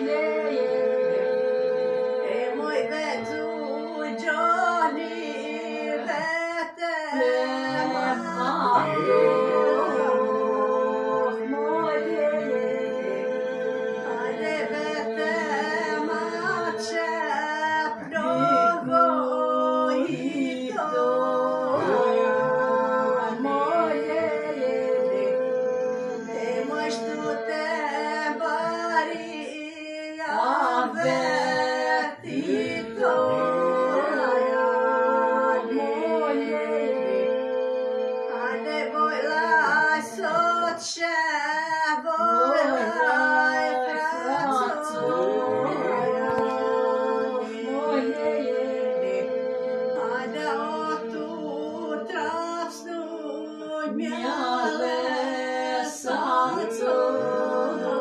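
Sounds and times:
voices singing a cappella: 0:00.0 - 0:58.0
sung drone: 0:44.4 - 0:47.4.

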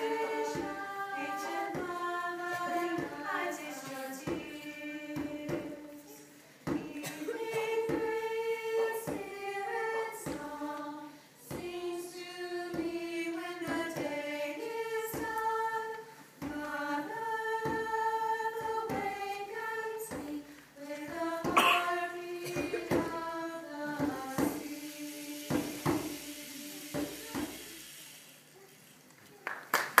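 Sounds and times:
women singing in harmony: 0:00.0 - 0:27.6.

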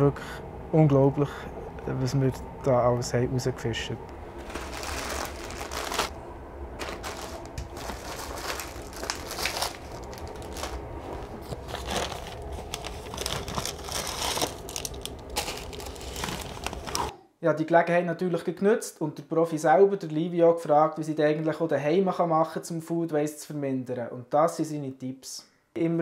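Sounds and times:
train rumbling: 0:00.0 - 0:17.1
plastic bag rustling: 0:04.2 - 0:17.1.

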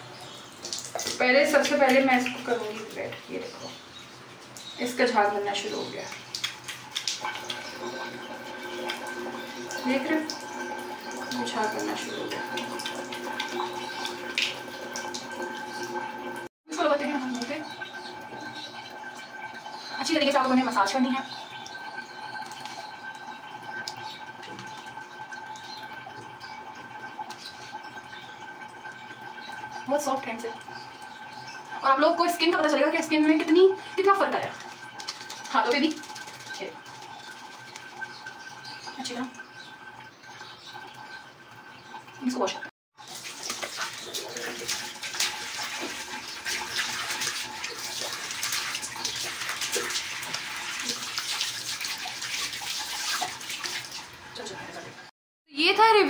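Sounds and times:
wet squishing of lather on skin: 0:00.6 - 0:03.2, 0:05.7 - 0:15.8, 0:33.3 - 0:38.6, 0:43.0 - 0:54.9
water splashing on face: 0:04.5 - 0:19.1, 0:32.5 - 0:39.4, 0:42.5 - 0:54.9.

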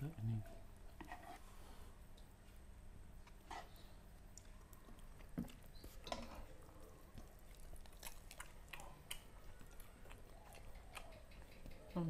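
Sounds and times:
faint low hum: 0:00.0 - 0:12.0
chewing and lip smacks: 0:04.3 - 0:12.0.

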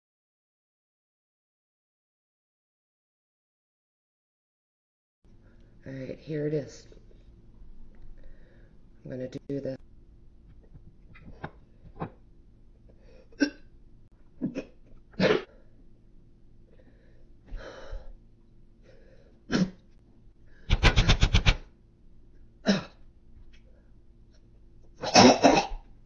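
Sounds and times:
woman breathing and gasping: 0:16.7 - 0:18.2
rapid stuttering vocal pulses: 0:20.7 - 0:21.7.

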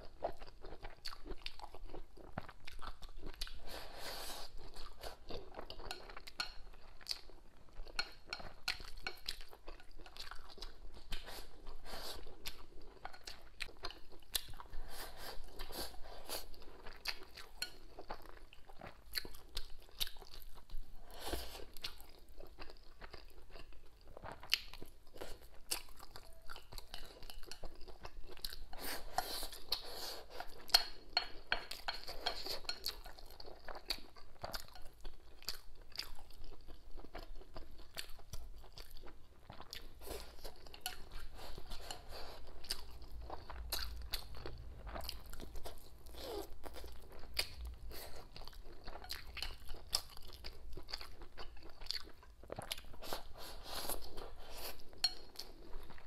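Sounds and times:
person chewing food: 0:00.0 - 0:56.0.

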